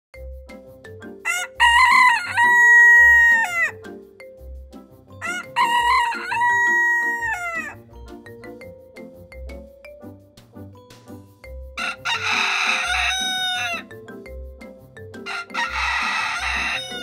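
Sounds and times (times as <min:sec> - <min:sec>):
background music with steady beat: 0:00.2 - 0:17.0
rooster crowing: 0:01.2 - 0:03.8, 0:05.2 - 0:07.8, 0:11.8 - 0:13.9, 0:15.3 - 0:17.0.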